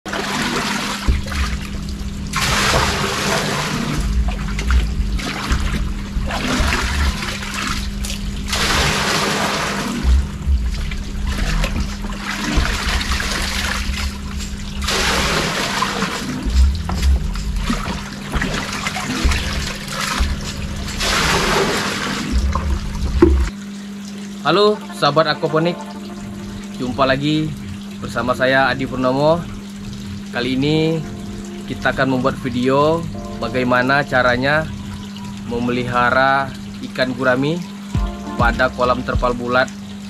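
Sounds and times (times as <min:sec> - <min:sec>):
water pouring into plastic drum: 0:00.1 - 0:24.8
steady low hum: 0:00.1 - 0:40.0.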